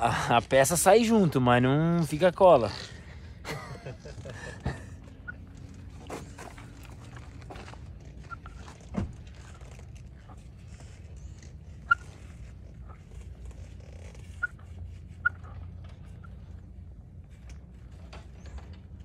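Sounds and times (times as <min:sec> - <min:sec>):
decal squeaking: 0:04.9 - 0:19.0.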